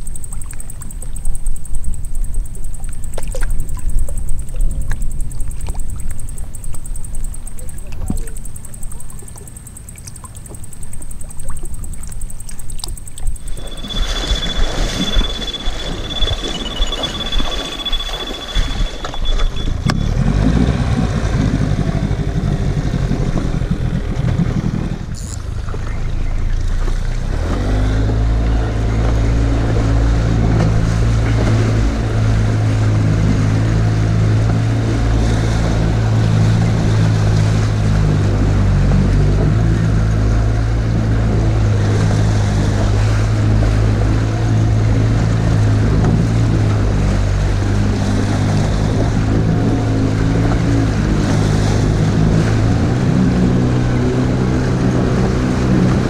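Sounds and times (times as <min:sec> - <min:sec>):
wind noise: 0:00.0 - 0:26.5
outboard motor running: 0:00.0 - 0:56.0
water noise: 0:00.0 - 0:56.0.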